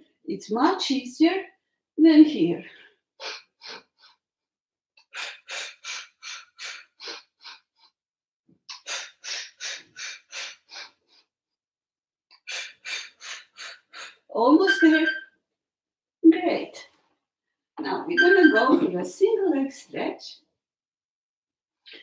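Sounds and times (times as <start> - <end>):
woman puffing rhythmic breaths: 2.7 - 4.3, 5.0 - 8.0, 8.7 - 11.4, 12.3 - 15.2.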